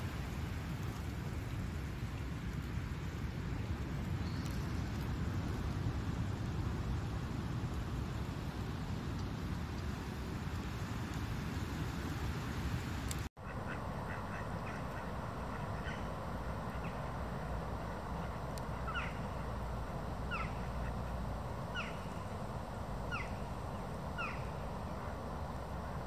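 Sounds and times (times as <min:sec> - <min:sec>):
ducks calling: 0:13.4 - 0:22.2
steady background rumble: 0:13.4 - 0:26.0.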